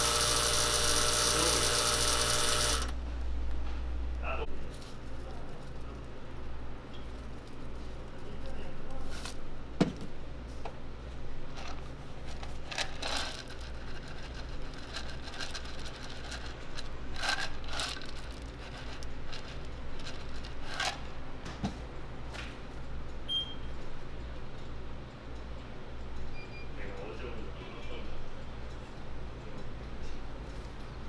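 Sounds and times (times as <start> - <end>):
steady low hum: 0.0 - 31.0
shakers rattling: 11.5 - 21.1.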